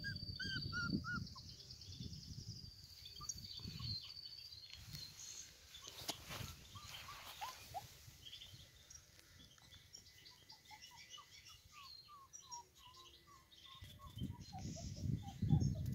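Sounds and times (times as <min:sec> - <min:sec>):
small birds twittering: 0:00.0 - 0:15.9.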